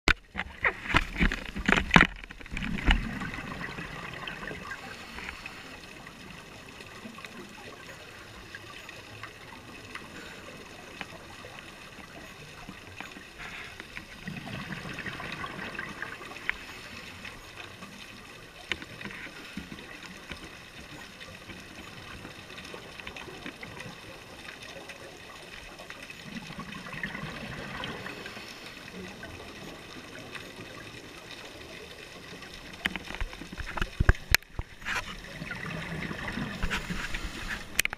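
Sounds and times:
diver bubbles gurgling underwater: 0:02.4 - 0:05.0, 0:14.1 - 0:17.8, 0:26.1 - 0:37.9.

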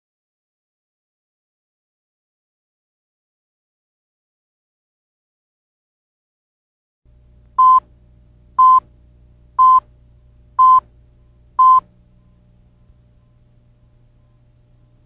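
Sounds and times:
faint low hum: 0:07.1 - 0:15.0
high-pitched countdown beeps: 0:08.6 - 0:08.8, 0:09.6 - 0:09.8, 0:10.6 - 0:10.8, 0:11.6 - 0:11.8.

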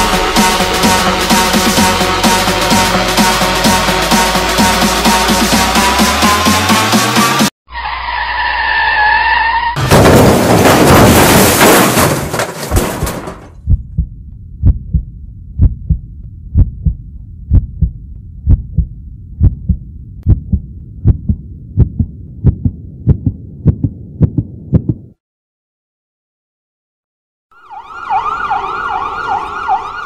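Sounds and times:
heartbeat thumps: 0:13.6 - 0:25.2
low hum: 0:13.6 - 0:25.2.

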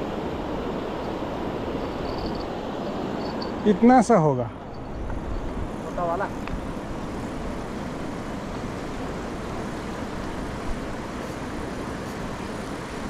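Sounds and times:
river rushing: 0:00.0 - 0:13.0.

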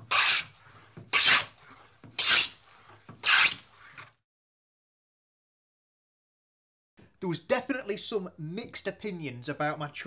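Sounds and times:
hand plane cutting wood: 0:00.0 - 0:04.1.

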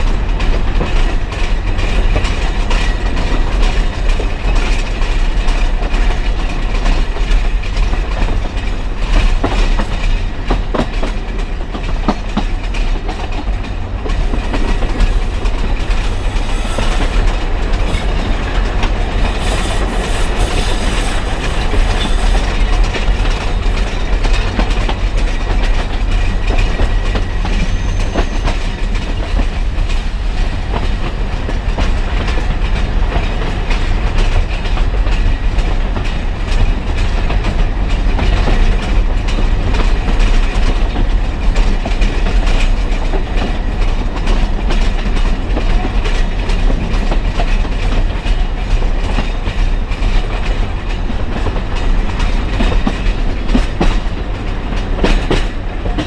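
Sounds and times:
train wheels rumbling on track: 0:00.0 - 0:56.0.

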